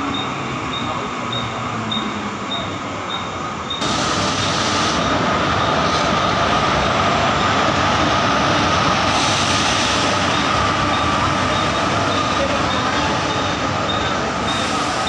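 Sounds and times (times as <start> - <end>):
train wheels rumbling on rails: 0.0 - 15.0.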